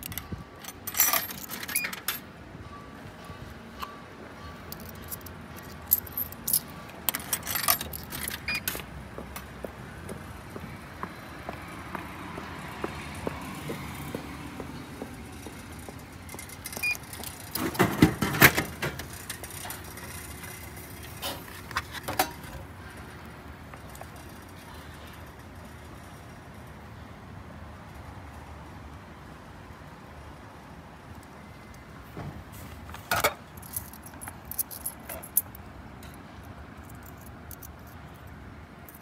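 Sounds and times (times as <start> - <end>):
coins clinking into slot: 0.0 - 2.3, 4.7 - 8.8.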